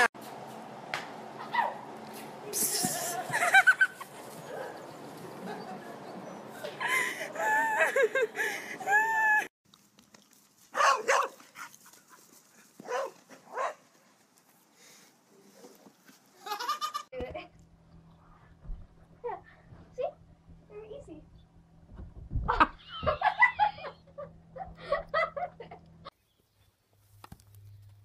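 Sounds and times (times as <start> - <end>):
dog barking: 10.8 - 11.4, 12.8 - 13.8.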